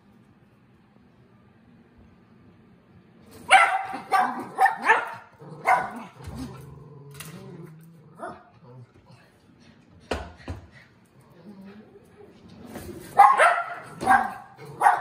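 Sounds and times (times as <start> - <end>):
dog barking: 3.5 - 6.1, 13.2 - 15.0.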